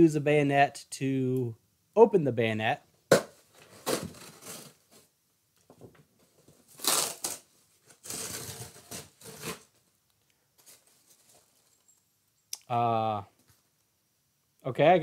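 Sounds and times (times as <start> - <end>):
blade slitting cardboard: 3.1 - 4.8, 6.7 - 9.7
cardboard tearing: 3.1 - 5.0, 6.6 - 9.8.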